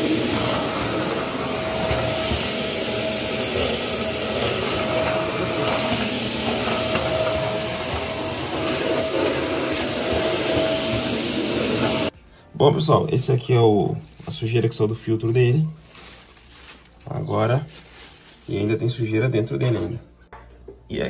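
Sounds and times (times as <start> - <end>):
stick vacuum running: 0.0 - 12.2.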